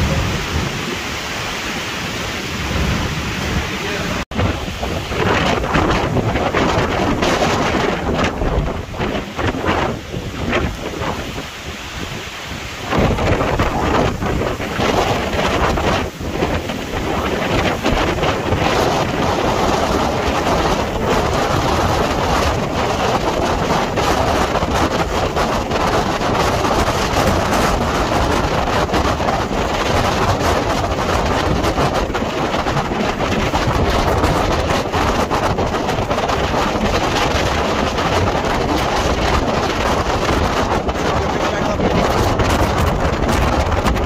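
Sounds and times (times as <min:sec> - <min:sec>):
strong wind on microphone: 0:00.0 - 0:44.0.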